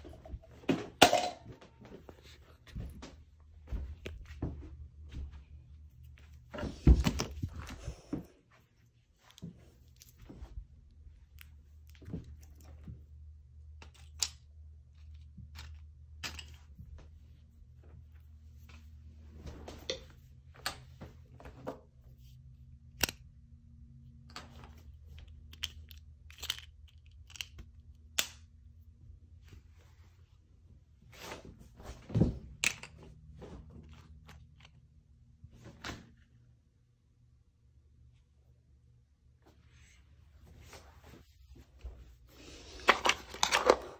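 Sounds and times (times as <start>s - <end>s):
small objects clicking and knocking: 13.7s - 16.8s, 25.1s - 28.4s.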